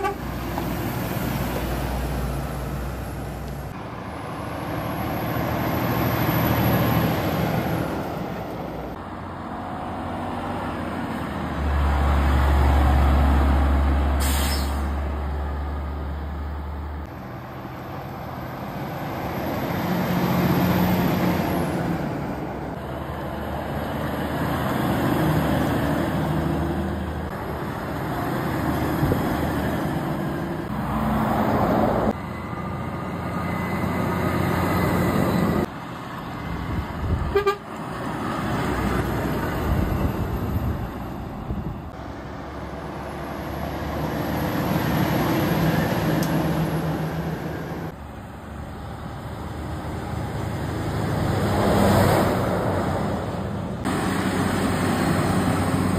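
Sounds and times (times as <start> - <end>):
diesel lorry engines droning: 0.0 - 55.9
air-brake hiss: 14.2 - 15.0.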